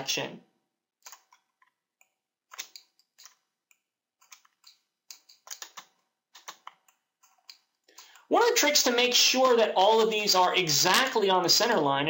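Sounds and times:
mouse and keyboard clicking: 1.0 - 8.3.

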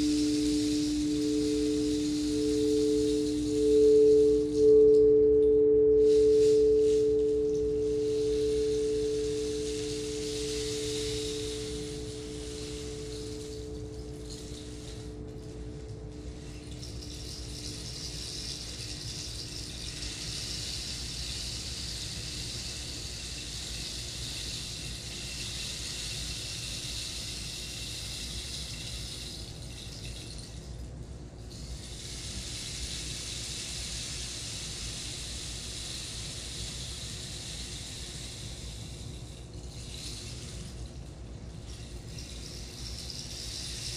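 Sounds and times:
ringing two-pitch tone: 0.0 - 16.3.

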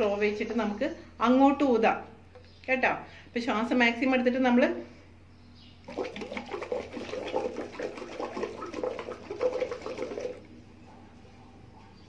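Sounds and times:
bubbling through straw in water: 5.8 - 10.5.

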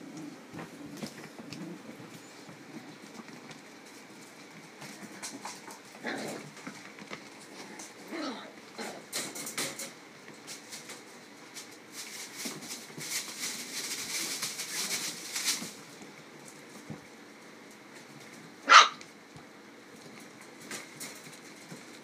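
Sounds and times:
puppies scampering on wooden floor: 0.0 - 22.0.

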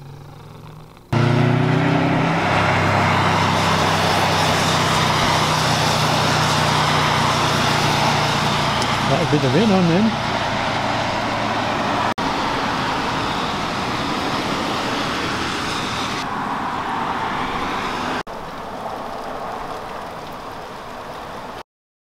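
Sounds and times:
rain falling: 18.3 - 21.6.

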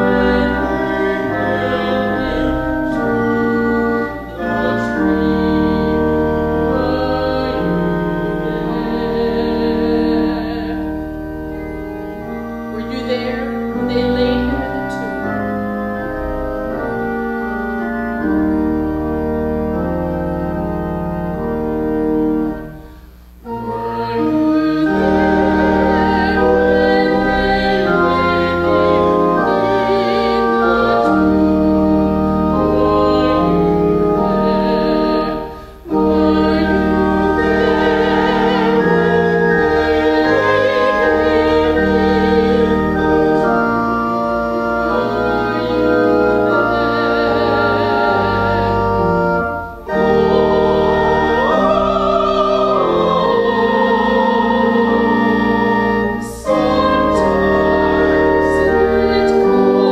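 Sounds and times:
woman singing: 0.0 - 3.1, 6.7 - 10.9, 12.8 - 15.4, 50.1 - 59.9
organ accompaniment: 0.0 - 59.9.

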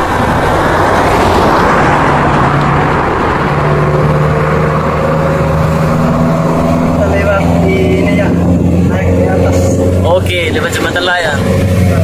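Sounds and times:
car engine driving: 0.0 - 12.0
road noise: 0.0 - 12.0.

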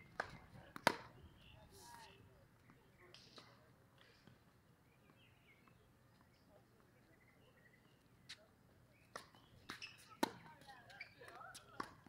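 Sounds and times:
tennis ball bouncing: 0.1 - 1.2, 9.1 - 12.0
faint bird chirps: 4.8 - 10.2.

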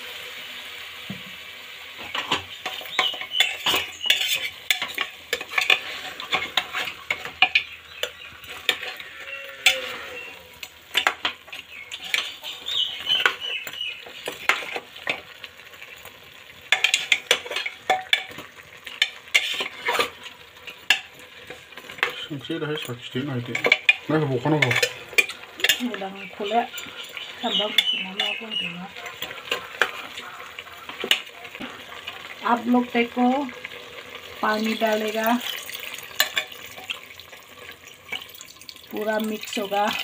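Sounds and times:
light sizzle: 0.0 - 40.0
metal ladle scraping a pot: 2.1 - 15.3, 16.7 - 22.2, 23.4 - 32.4, 34.7 - 37.0
ladle clinking against pot: 23.5 - 26.0.

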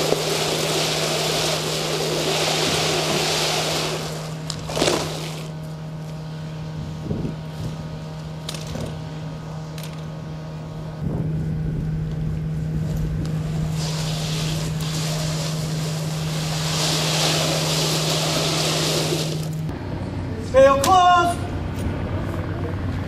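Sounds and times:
hose scraping over asphalt: 0.0 - 5.6, 13.3 - 19.7
fire engine idling hum: 21.5 - 23.0.

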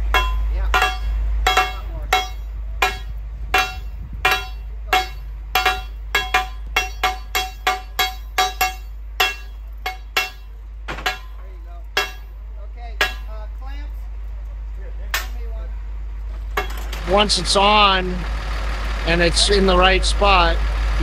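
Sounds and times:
hammer ringing on steel: 0.0 - 13.6, 15.1 - 15.6, 16.6 - 18.0.

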